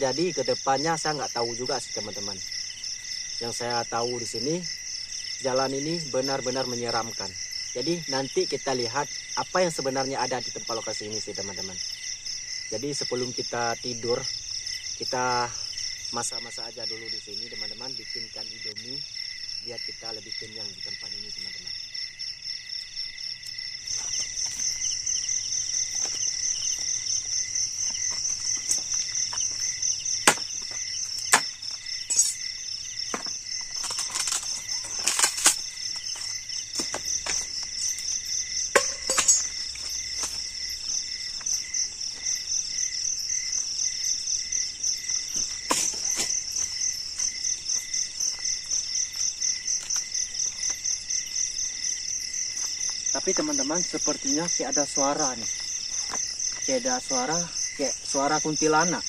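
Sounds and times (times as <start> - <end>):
crickets and insects chirping: 0.0 - 59.0
sharp knocks and clatters: 38.7 - 39.6.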